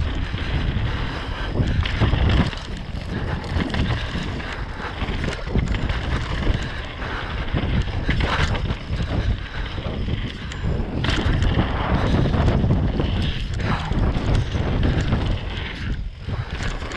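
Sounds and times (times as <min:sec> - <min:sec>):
bike rattling: 0:00.0 - 0:16.9
tyres rumbling on rough trail: 0:00.0 - 0:16.9
wind buffeting microphone: 0:00.0 - 0:16.9.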